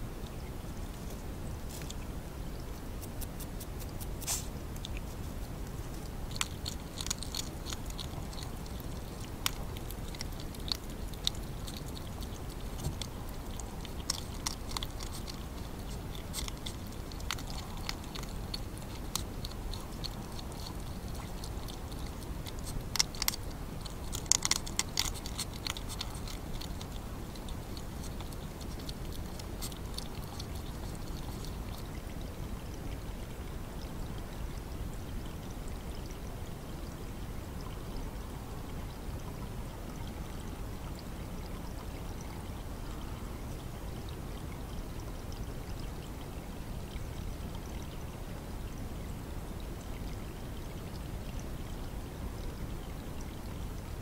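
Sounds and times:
low background hiss: 0.0s - 54.0s
hedgehogs crunching pellet food: 3.0s - 32.0s.

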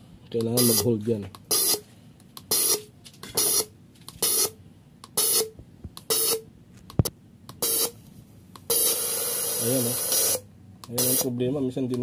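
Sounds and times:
hissing spray bursts: 8.7s - 10.4s.

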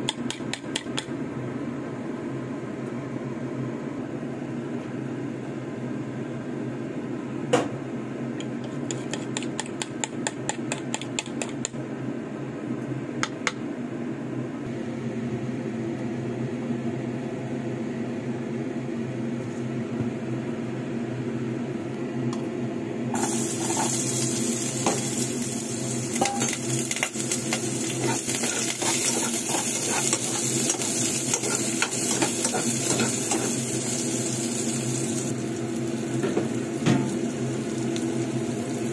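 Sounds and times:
steady low hum: 0.0s - 38.9s
fork whisking eggs in a bowl: 8.6s - 11.7s, 27.6s - 33.6s
oil sizzling in a pan: 23.1s - 38.9s
utensil scraping a pan: 27.9s - 33.6s.

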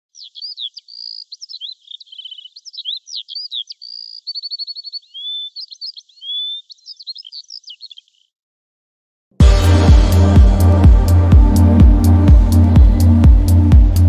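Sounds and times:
songbird singing: 0.0s - 8.4s.

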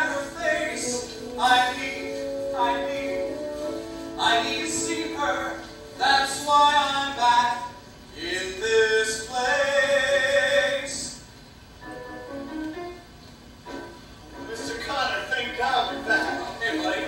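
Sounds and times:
man singing on stage: 0.0s - 3.4s.

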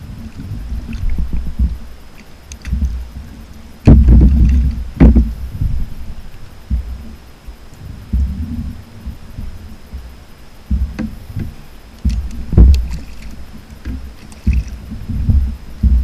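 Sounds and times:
water slapping against kayak hull: 0.0s - 6.0s, 8.1s - 16.0s
sharp knocks on hull: 3.8s - 5.8s, 10.7s - 16.0s.

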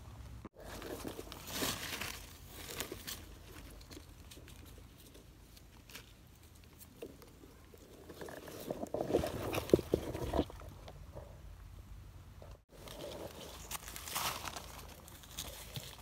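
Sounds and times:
dry leaves rustling: 0.6s - 7.2s, 12.7s - 16.0s.

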